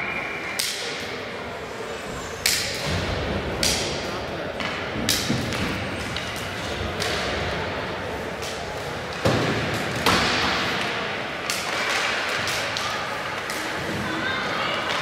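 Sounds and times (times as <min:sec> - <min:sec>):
arena noise: 0:00.0 - 0:15.0
hockey sticks and puck knocking: 0:02.4 - 0:07.6, 0:08.3 - 0:14.0, 0:14.8 - 0:15.0
hits against rink boards: 0:04.6 - 0:07.5, 0:08.4 - 0:14.0.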